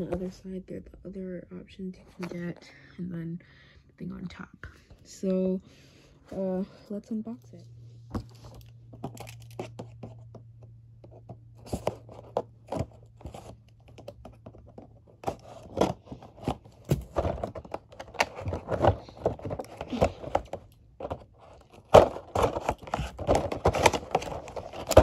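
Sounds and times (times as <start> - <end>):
toy packaging being opened: 9.0 - 10.1, 11.6 - 25.0.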